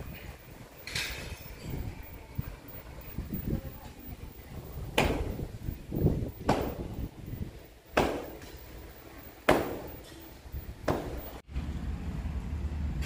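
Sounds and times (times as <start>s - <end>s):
sharp knocks: 4.9s - 5.5s, 6.4s - 7.0s, 8.0s - 8.6s, 9.5s - 10.1s, 10.8s - 11.4s.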